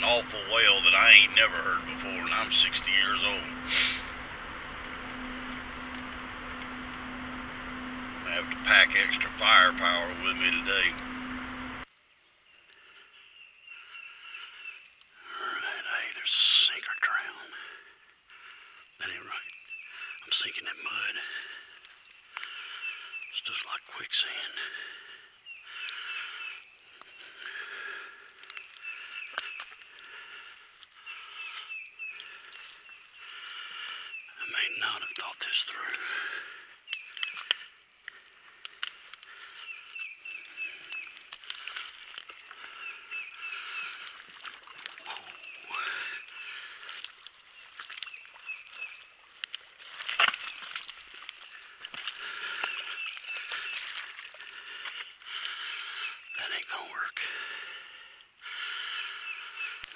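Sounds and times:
chorus of calling animals: 0:00.0 - 0:11.8, 0:12.8 - 0:59.9
steady buzzing din: 0:00.0 - 0:11.9
footsteps sloshing through water: 0:28.3 - 0:33.6, 0:36.8 - 0:55.7.

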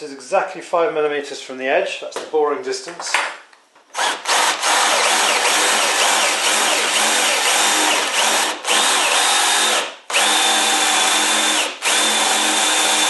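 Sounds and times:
cordless drill boring into wood: 0:04.0 - 0:13.0.

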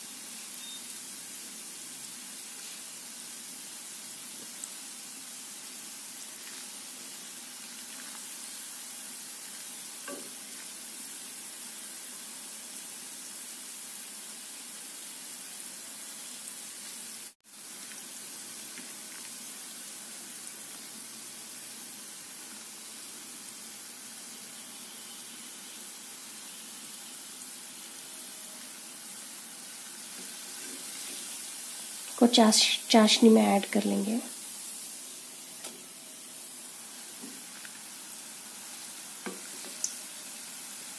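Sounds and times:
food sizzling in hot oil: 0:00.0 - 0:40.9.

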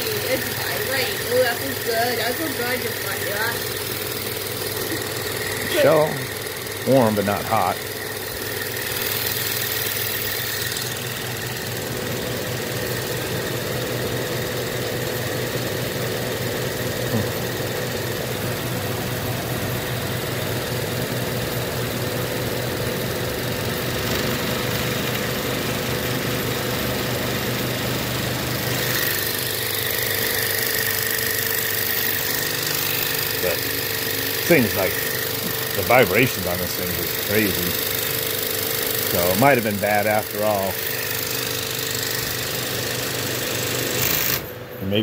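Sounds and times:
compressor humming and vibrating: 0:00.0 - 0:45.0.

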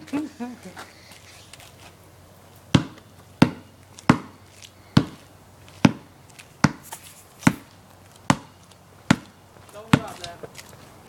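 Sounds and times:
basketball bouncing on concrete: 0:02.7 - 0:10.6.

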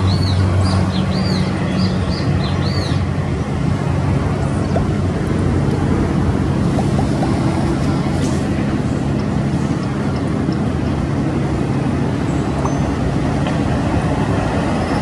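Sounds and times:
engine running steadily: 0:00.0 - 0:15.0
noisy background: 0:00.0 - 0:15.0.

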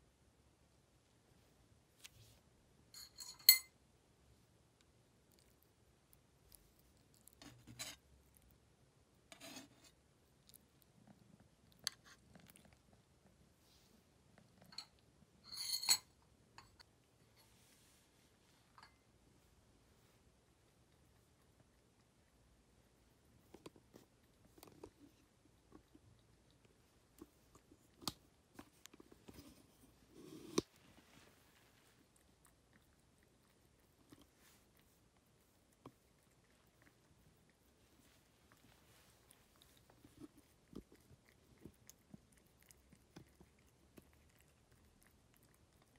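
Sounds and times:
cat chewing wet food: 0:04.8 - 0:09.3, 0:09.9 - 0:13.5, 0:20.3 - 0:45.9.

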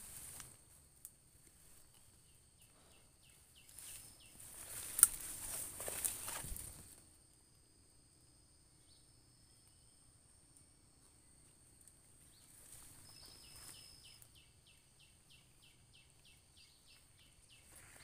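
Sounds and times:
bird chirping: 0:02.0 - 0:04.9, 0:12.3 - 0:18.0
footsteps through rustling undergrowth: 0:03.6 - 0:07.0, 0:12.3 - 0:14.0
twig snapping: 0:04.7 - 0:06.6.

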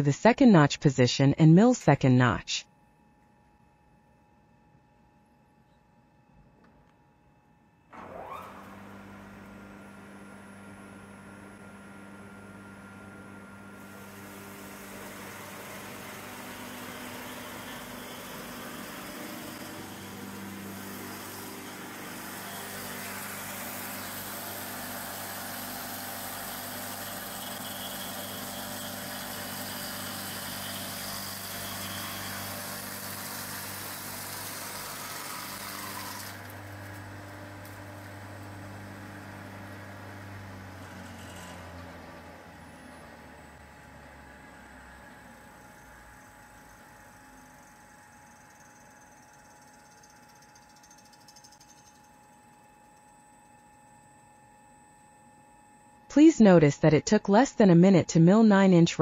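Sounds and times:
cutter chipping wood: 0:13.8 - 0:37.8
electric motor humming: 0:13.8 - 0:37.8.

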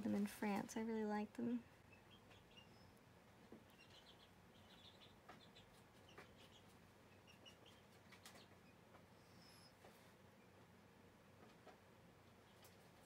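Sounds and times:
faint high chirps and ticks: 0:01.7 - 0:10.7.

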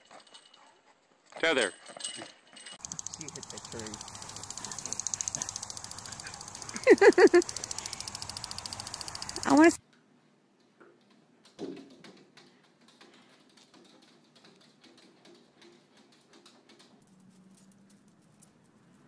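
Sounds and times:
paws tapping on glass door: 0:11.5 - 0:17.7.

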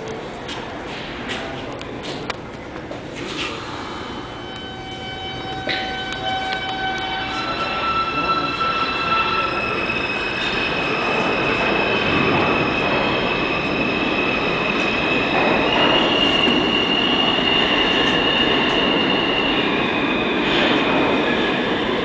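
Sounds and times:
train wheels rumbling on rail: 0:00.0 - 0:22.0
high wheel squeal: 0:04.4 - 0:20.8.

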